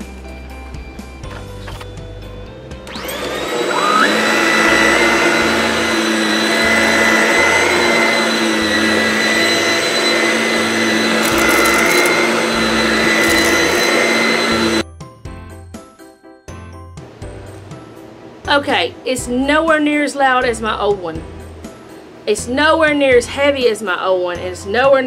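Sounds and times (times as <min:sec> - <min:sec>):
vacuum cleaner motor whine: 0:02.8 - 0:14.8.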